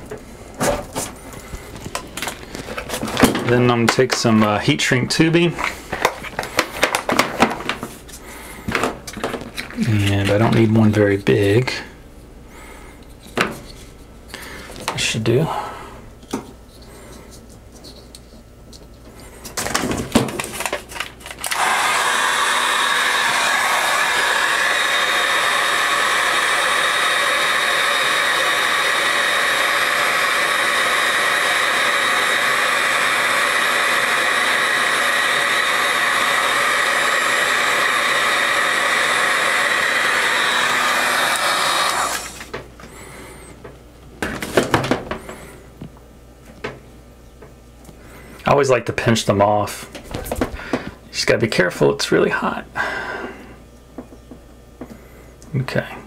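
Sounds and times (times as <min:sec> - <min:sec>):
heat gun blowing: 0:21.0 - 0:43.6.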